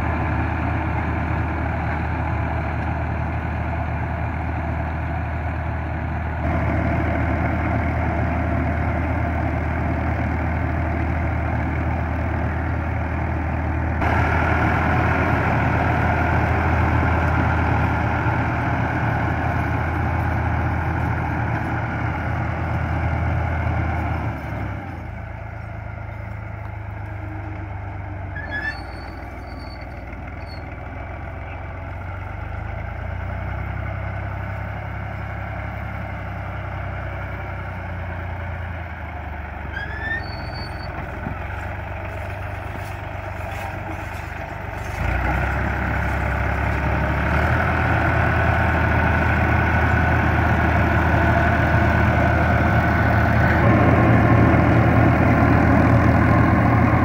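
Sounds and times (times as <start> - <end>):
tractor diesel engine running: 0.0 - 57.0
rotavator churning soil: 39.9 - 57.0.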